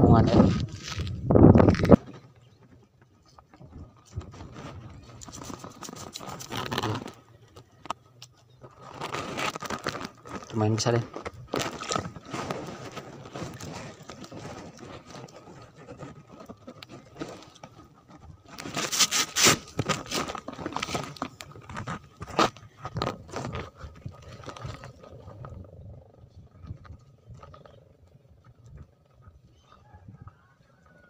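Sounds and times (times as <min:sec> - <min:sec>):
hands scraping fishing line: 0:04.1 - 0:25.5.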